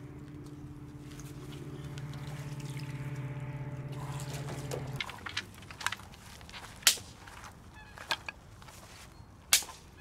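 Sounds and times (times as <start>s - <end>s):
low engine-like drone: 0.0s - 6.0s
water lapping and splashing: 0.6s - 6.4s
dry sticks snapping: 4.1s - 8.4s, 9.5s - 9.9s.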